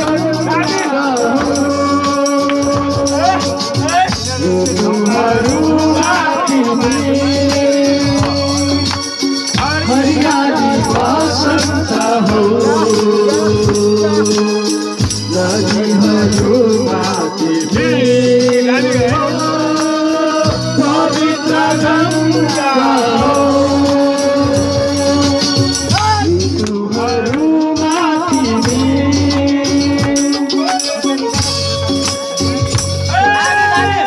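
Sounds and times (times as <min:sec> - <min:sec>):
men singing together: 0:00.0 - 0:34.0
rattling percussion beat: 0:00.0 - 0:34.0.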